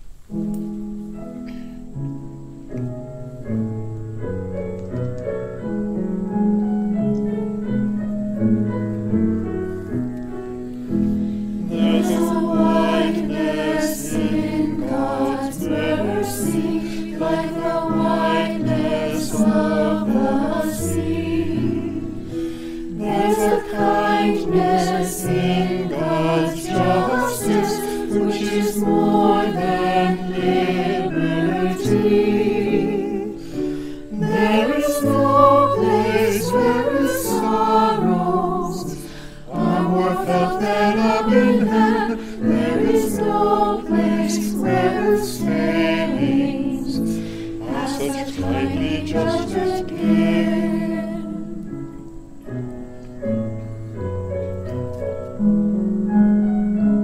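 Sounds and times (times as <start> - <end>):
choir singing a hymn: 9.4 - 55.0.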